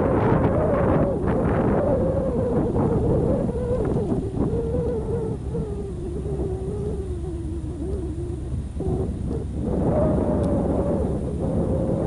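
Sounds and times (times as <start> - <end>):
wavering tone sinking in pitch: 0.0 - 12.0
wind buffeting microphone: 0.0 - 12.0.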